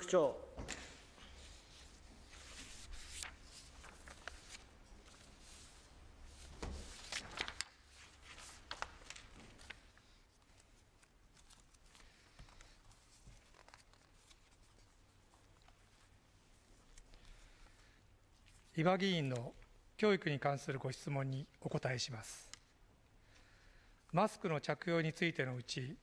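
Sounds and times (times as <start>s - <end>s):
papers rustling: 0.6s - 17.6s.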